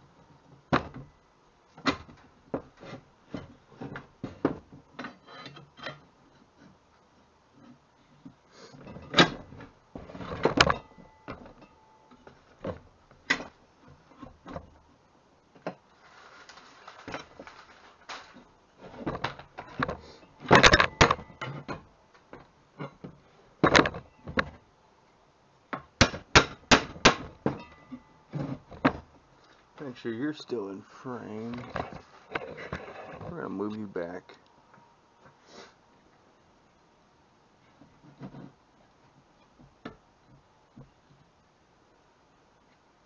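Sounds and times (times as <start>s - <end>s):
metal parts clanking: 16.1s - 21.9s.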